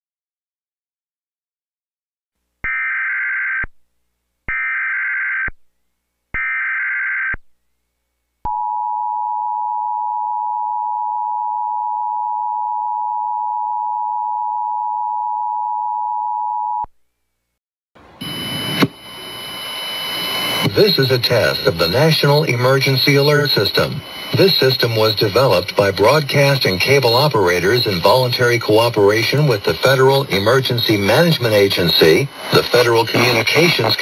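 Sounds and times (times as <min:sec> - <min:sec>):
warbling data tones: 0:18.2 - 0:28.2, 0:29.3 - 0:34.0.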